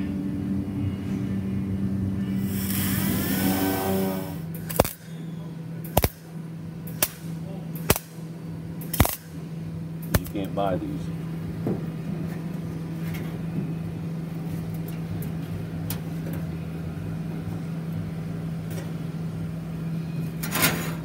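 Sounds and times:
low machine hum: 0.0s - 21.0s
loud burst of noise: 2.3s - 5.0s.

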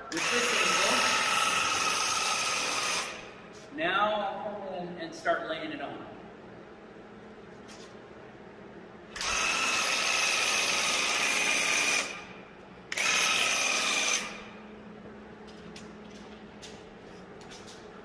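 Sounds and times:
paint sprayer pump buzzing: 0.0s - 3.4s, 9.1s - 12.3s, 12.9s - 14.6s.

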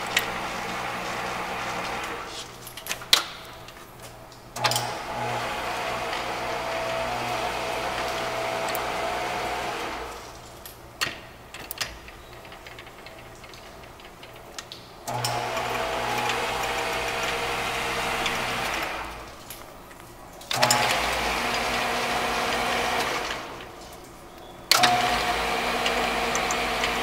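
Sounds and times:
lathe running with mechanical whine: 0.0s - 2.4s, 5.0s - 10.1s, 15.1s - 19.1s, 20.6s - 23.6s, 24.7s - 27.0s.

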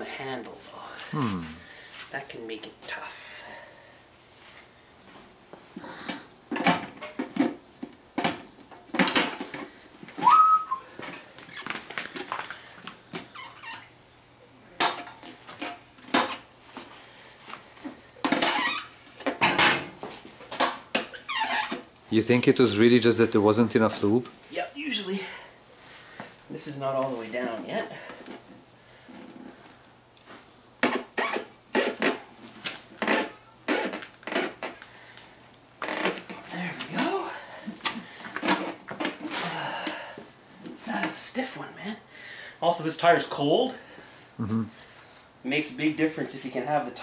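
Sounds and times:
tire bead rubbing on rim: 30.8s - 32.3s, 33.0s - 34.8s.

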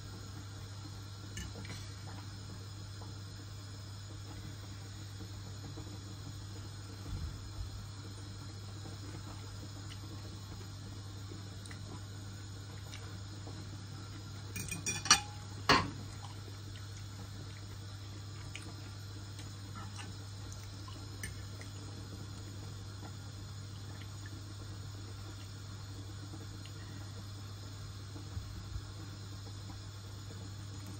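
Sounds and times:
low steady hum: 0.0s - 30.9s
fork clinking on ceramic plate: 14.6s - 15.4s.

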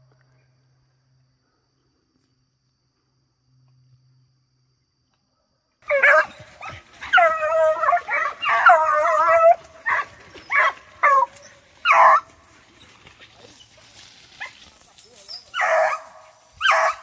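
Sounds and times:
hound barking: 5.8s - 12.4s, 15.5s - 17.0s
hound howling bays: 5.8s - 12.4s, 15.5s - 17.0s.

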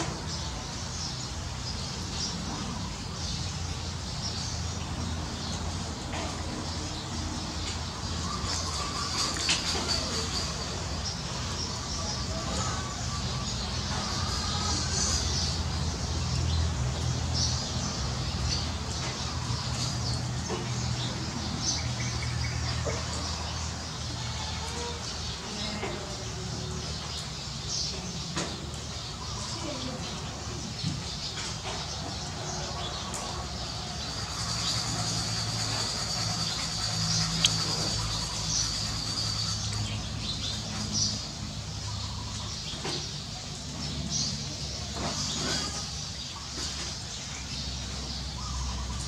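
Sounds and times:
birds chirping: 0.0s - 49.0s.

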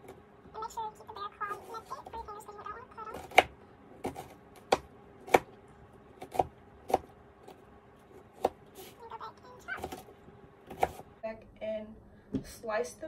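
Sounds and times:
knife chopping on plastic cutting board: 3.1s - 8.9s, 9.8s - 11.1s.

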